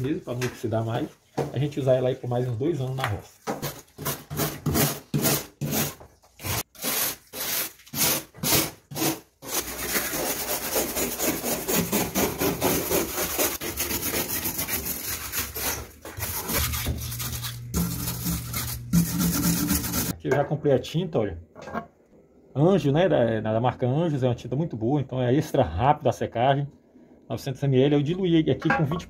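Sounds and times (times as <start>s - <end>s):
wire brush scraping sheet metal: 3.6s - 20.1s.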